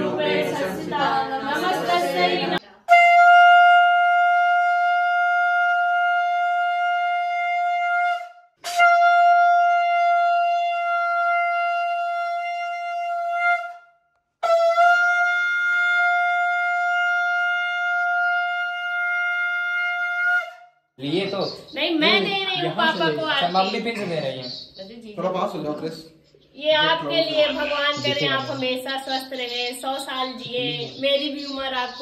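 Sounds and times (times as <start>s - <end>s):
conch shell blasts: 2.9s - 20.8s.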